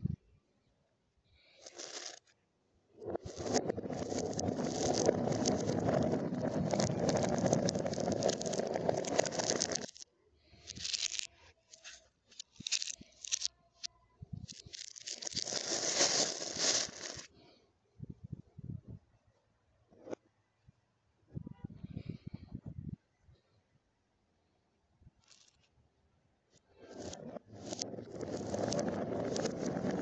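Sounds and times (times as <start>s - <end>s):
glass marbles clicking: 1.6s - 2.2s, 3.2s - 10.0s, 10.6s - 13.5s, 14.5s - 17.2s, 26.9s - 30.0s
plastic bag rustling: 3.2s - 10.0s, 10.6s - 13.5s, 14.5s - 17.3s.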